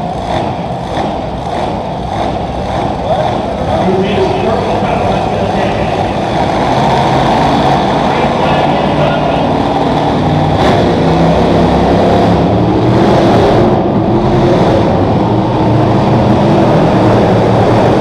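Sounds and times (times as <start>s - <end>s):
monster truck engines revving: 0.0s - 18.0s.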